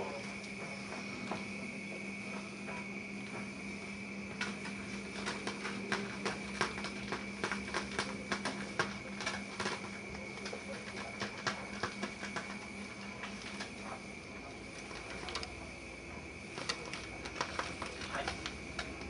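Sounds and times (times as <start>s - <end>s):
steady hum: 0.0s - 19.0s
kittens' claws tapping on hard floor: 4.4s - 14.0s.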